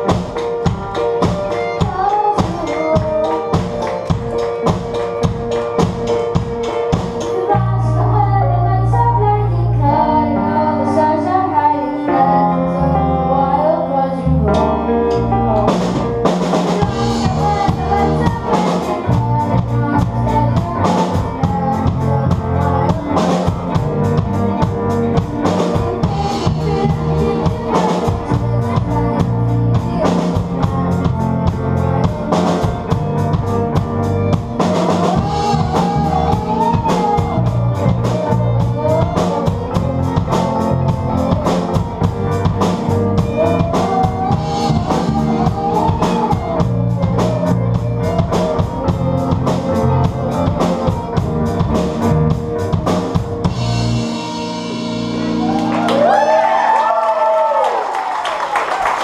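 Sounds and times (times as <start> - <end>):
drum kit: 0.0 - 9.2, 14.4 - 59.0
live rock band playing: 0.0 - 59.0.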